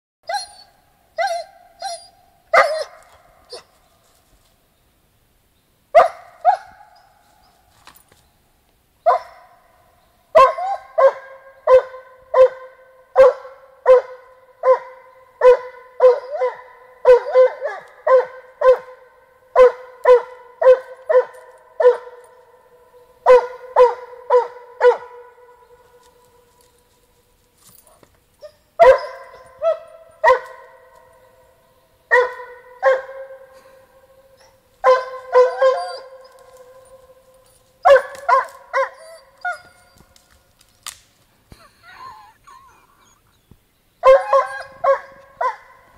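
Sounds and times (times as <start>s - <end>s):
dog barking: 1.2s - 3.7s, 6.0s - 7.0s, 9.0s - 9.6s, 10.4s - 22.4s, 23.2s - 25.5s, 28.8s - 31.2s, 32.1s - 33.6s, 34.4s - 36.8s, 37.8s - 39.8s, 44.0s - 45.9s.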